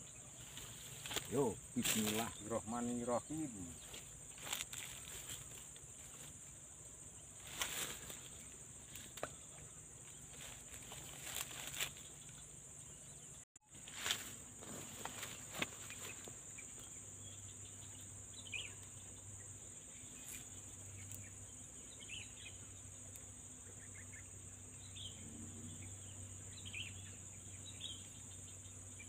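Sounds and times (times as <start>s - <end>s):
high-pitched insect chorus: 0.0s - 29.0s.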